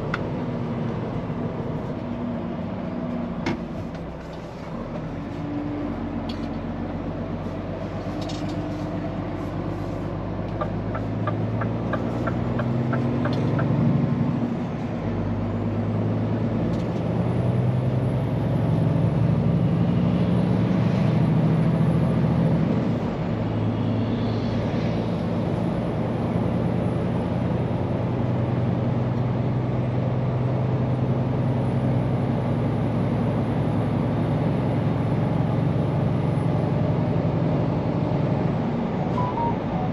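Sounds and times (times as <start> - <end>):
truck diesel engine running: 0.0 - 20.6.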